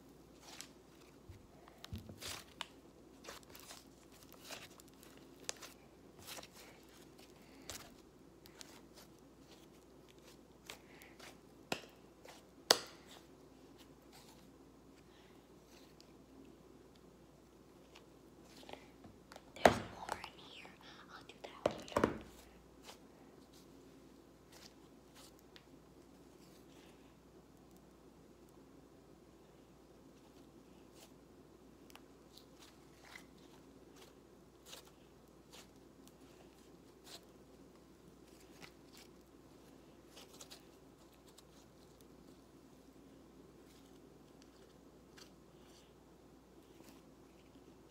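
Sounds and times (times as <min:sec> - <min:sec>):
low steady hum: 0:00.0 - 0:47.9
sticky slime squishing: 0:00.3 - 0:14.5, 0:31.8 - 0:42.9.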